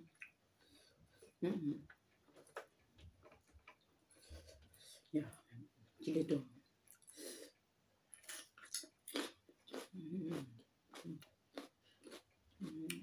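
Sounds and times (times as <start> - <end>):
chewing crisp pepper: 8.2 - 13.0.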